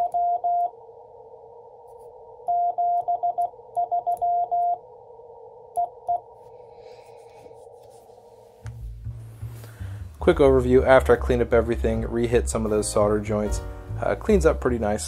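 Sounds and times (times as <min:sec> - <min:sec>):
morse code beeps: 0:02.5 - 0:04.8.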